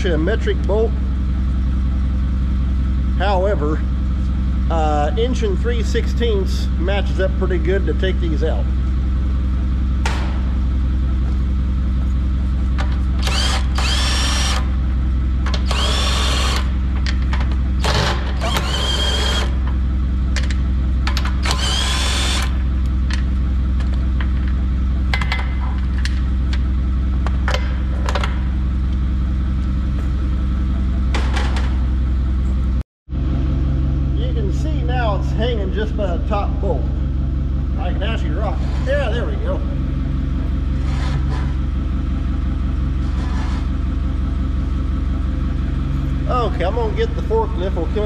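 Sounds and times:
engine idling: 0.0 - 48.0
impact wrench whine: 12.6 - 28.8, 29.9 - 32.0.

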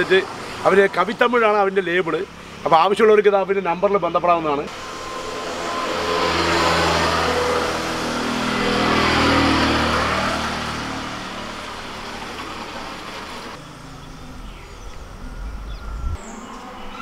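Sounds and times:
motor vehicle passing by: 4.4 - 17.0.

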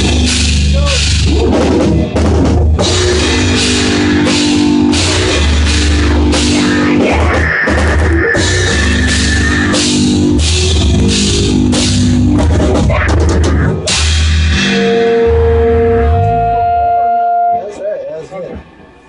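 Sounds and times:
drum kit with cymbal crashes: 0.0 - 17.6
electric guitar chords: 0.0 - 19.0.

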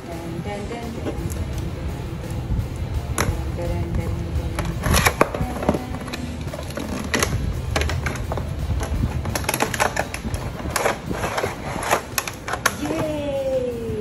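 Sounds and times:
quiet background music: 0.0 - 14.0
tape and cardboard scraping: 3.1 - 13.1.

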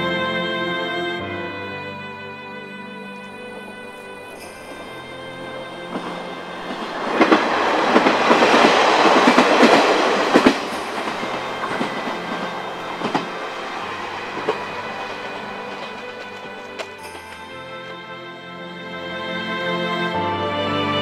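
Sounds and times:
diesel railcar passing: 0.0 - 21.0
wheels clicking over rail joints: 3.1 - 18.0.

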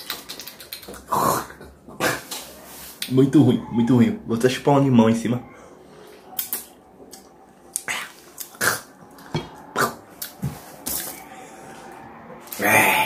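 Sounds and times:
person sucking and huffing: 12.5 - 13.0.

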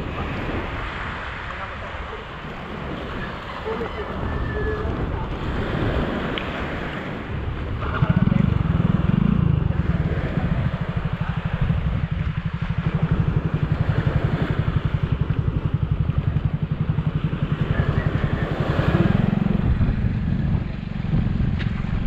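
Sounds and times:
wind gusts on microphone: 0.0 - 22.0
motorcycle engine idling: 6.6 - 22.0.

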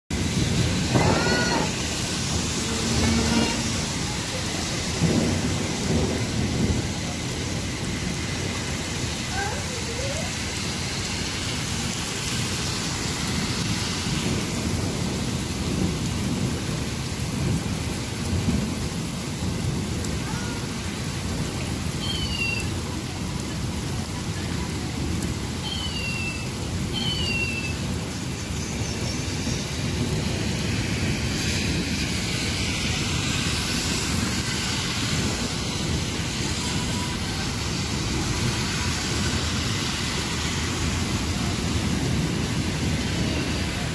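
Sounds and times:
heavy rain pouring: 0.1 - 43.9
low rumble: 0.2 - 7.8.

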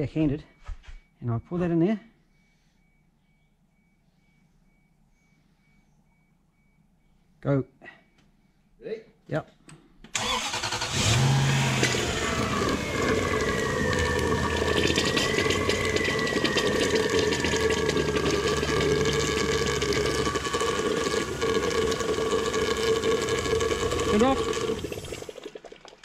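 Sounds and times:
thin steady whine: 0.0 - 8.8, 11.2 - 25.4
engine idling: 10.2 - 25.3
liquid churning in a tank: 11.6 - 26.0.

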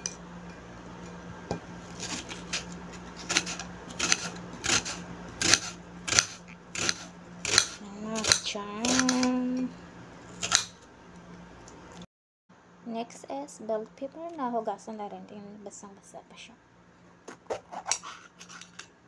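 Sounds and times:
knife slicing onion on plate: 2.0 - 9.3
person humming: 7.8 - 9.8.

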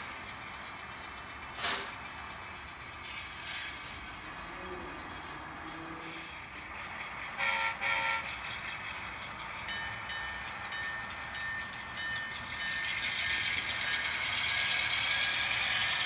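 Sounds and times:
running-train noise: 0.0 - 16.0
model locomotive horn toots: 7.3 - 8.5.

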